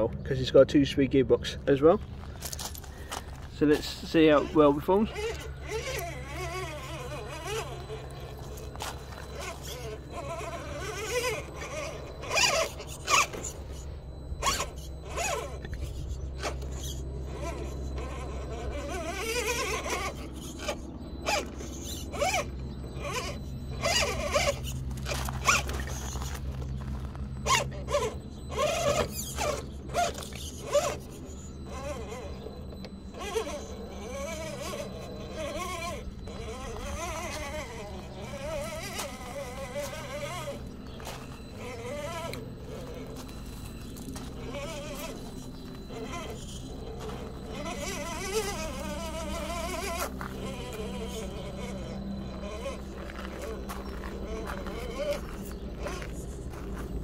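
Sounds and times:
electric motor whining: 1.4s - 57.0s.

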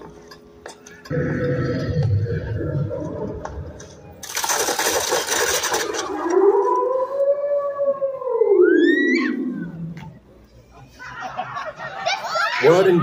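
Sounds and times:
wolf howl: 6.0s - 9.9s.

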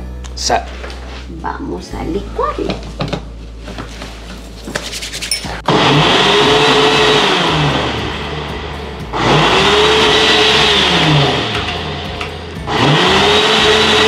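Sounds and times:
blender motor: 5.7s - 14.0s.

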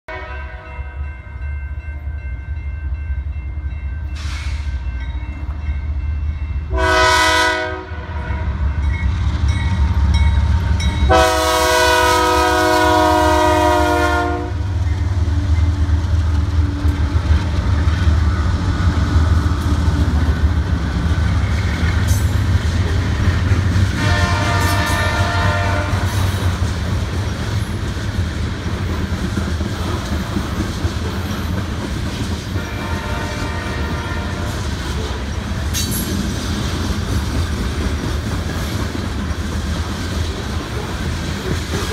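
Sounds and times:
train horn blasts: 0.1s - 1.0s, 6.7s - 8.8s, 11.1s - 14.8s, 23.9s - 26.4s, 32.6s - 35.2s
freight train rumbling over rails: 0.1s - 41.9s.

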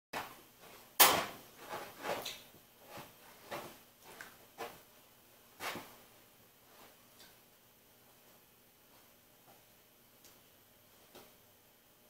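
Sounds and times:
knocks and rustles of handling gear: 0.2s - 4.9s.

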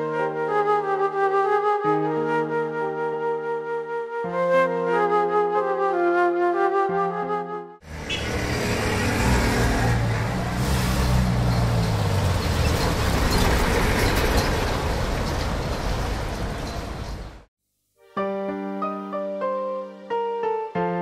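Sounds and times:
tyres rumbling: 7.9s - 17.5s.

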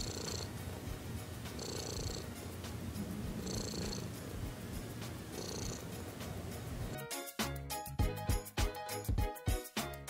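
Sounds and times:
cat purring: 0.0s - 7.0s.

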